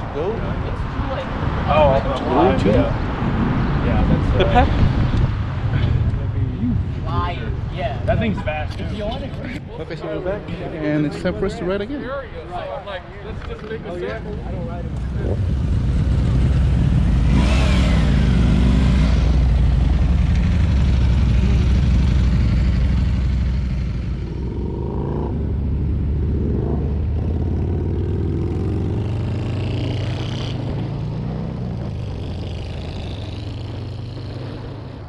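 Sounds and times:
wind noise on microphone: 0.0 - 6.9, 15.0 - 20.2
motorcycle engines revving: 13.6 - 35.0.

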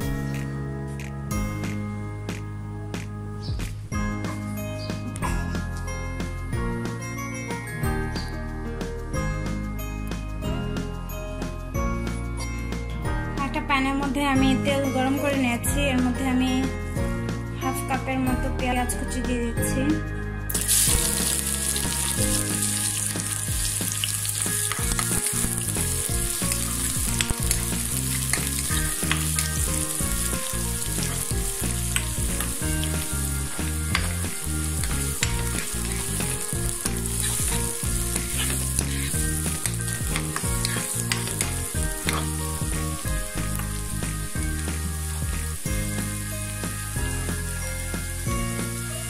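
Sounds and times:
onions sizzling in hot oil: 20.5 - 49.0.

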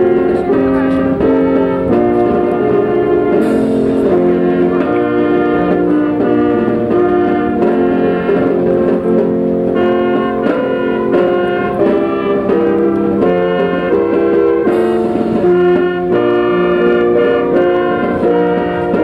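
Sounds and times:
brass band playing chords: 0.0 - 19.0.

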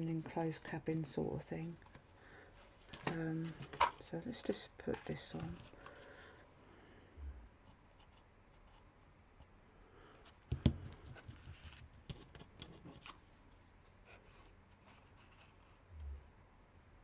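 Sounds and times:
card rustling: 1.8 - 6.2, 10.8 - 13.4.

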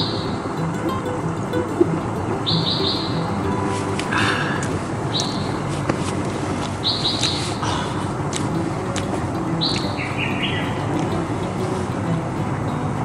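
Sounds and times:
small birds chirping: 0.0 - 0.7, 2.4 - 5.9, 6.6 - 8.1, 9.5 - 11.3
steady background hiss: 0.0 - 13.0.

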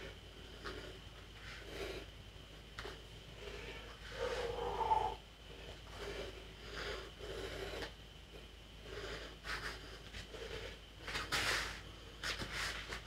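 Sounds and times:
hands and feet rubbing on mat: 9.4 - 13.0.

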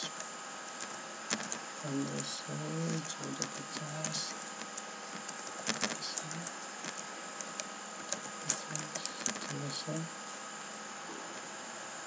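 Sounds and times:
electrical hiss and hum: 0.0 - 12.0
computer keyboard keystrokes: 0.8 - 1.6, 2.8 - 9.7.

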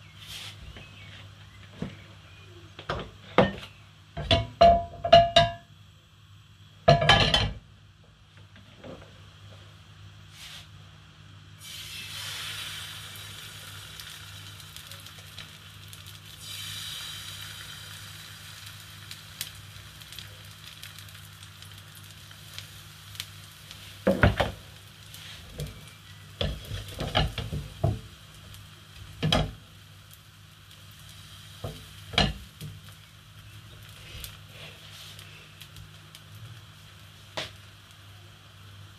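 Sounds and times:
kitchen things knocking and clattering: 4.2 - 5.6, 6.9 - 7.6, 26.4 - 28.0
batter sizzling in frying pan: 11.5 - 38.9.

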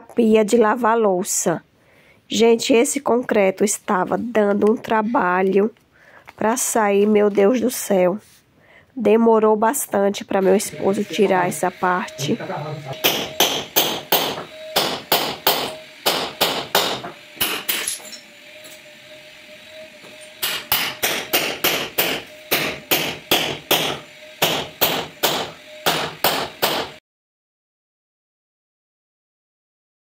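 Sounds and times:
hammer breaking concrete: 13.0 - 18.2, 20.4 - 27.0.

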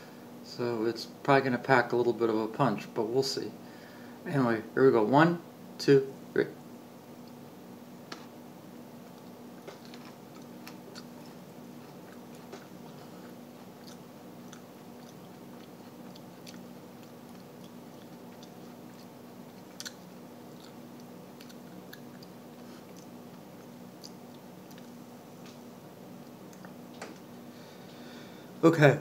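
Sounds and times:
small crunches and mouth clicks: 9.0 - 27.4
person chewing chili pepper: 9.1 - 25.0, 26.2 - 26.8.

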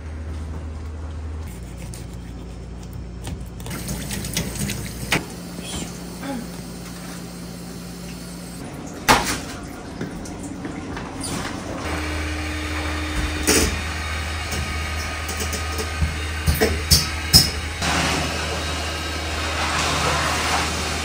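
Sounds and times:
brush scrubbing fish: 1.5 - 2.9
running tap water: 3.7 - 17.9.

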